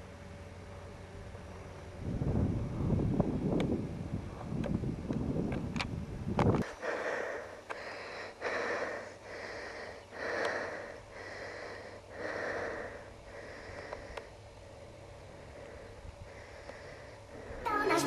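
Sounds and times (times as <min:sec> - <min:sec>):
heavy rhythmic breathing: 0:06.6 - 0:14.4, 0:15.3 - 0:18.0.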